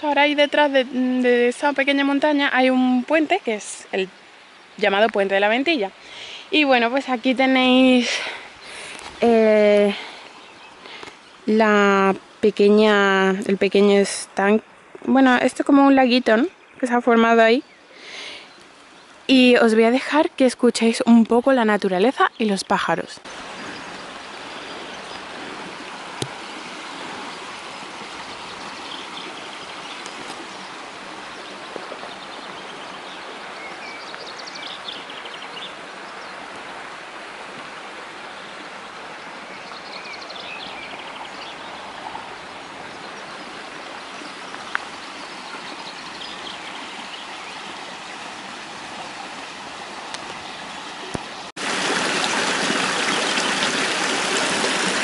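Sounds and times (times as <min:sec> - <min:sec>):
birds chirping faintly: 0:00.0 - 0:51.6
stream running: 0:00.0 - 0:55.0
stream rushing through rock channel: 0:22.9 - 0:55.0.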